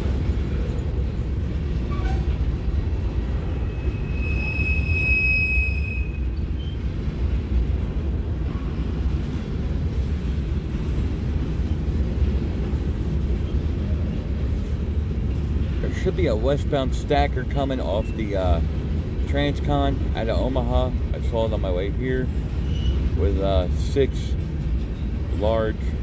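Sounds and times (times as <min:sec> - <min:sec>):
train wheels rumbling on rail: 0:00.0 - 0:26.0
high wheel squeal: 0:03.6 - 0:06.8, 0:22.6 - 0:23.1.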